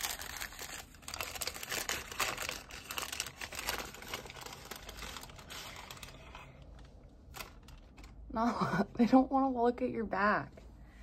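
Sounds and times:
plastic packets crinkling: 0.0 - 8.3.

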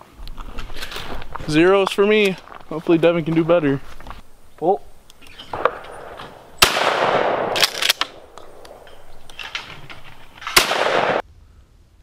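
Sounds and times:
shotgun shots echoing: 5.3 - 9.6, 10.4 - 11.2.

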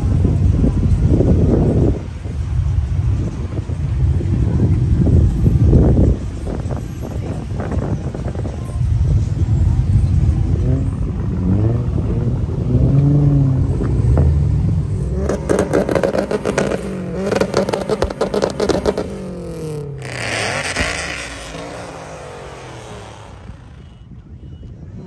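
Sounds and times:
car engines revving past: 9.5 - 24.0.

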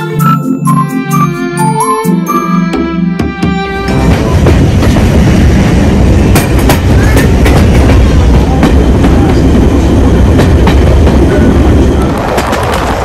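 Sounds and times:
train wheels rumbling on rails: 3.4 - 13.0.

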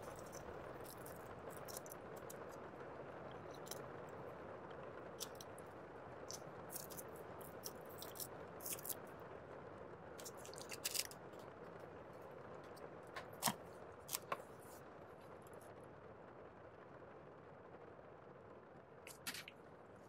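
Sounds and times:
paper packets crinkling: 0.0 - 2.5, 10.2 - 11.3
steady background hiss: 0.0 - 20.0.

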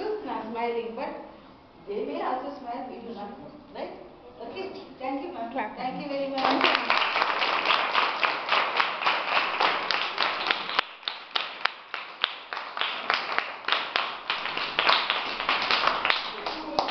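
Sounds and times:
children clapping: 6.4 - 16.9.

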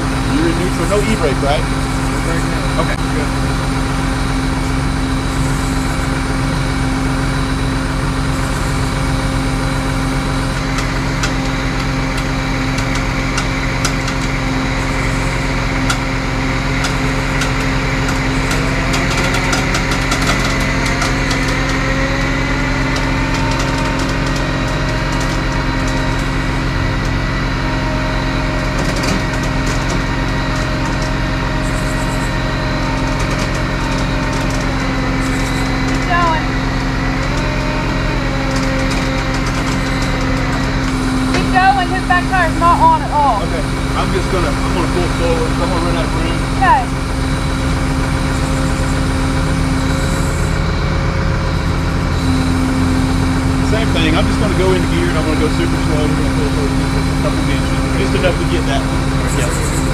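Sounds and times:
vehicle engine idling: 0.0 - 59.9.

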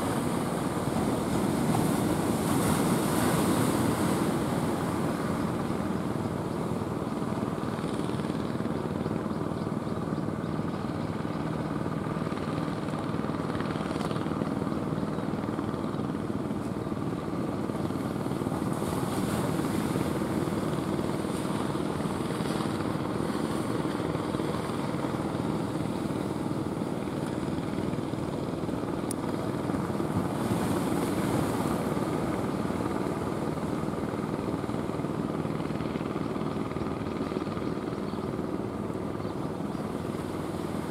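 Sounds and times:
waves washing: 0.0 - 8.0, 16.4 - 37.5
boat engine droning: 0.0 - 40.9.

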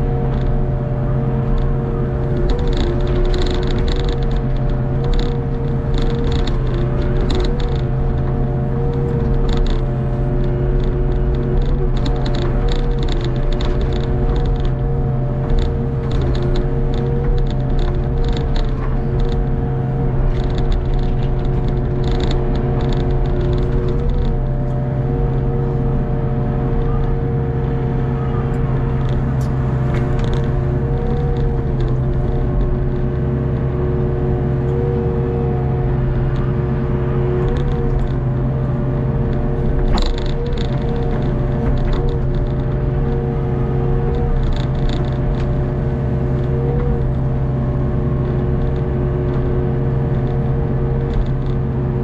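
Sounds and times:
excavator engine running: 0.0 - 52.0
light rattling clicks: 1.5 - 25.6, 28.6 - 33.8, 37.3 - 38.6, 39.2 - 47.3.

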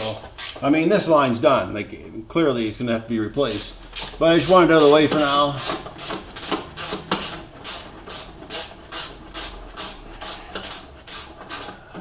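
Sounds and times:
ratcheting wrench clicking: 0.4 - 0.7.

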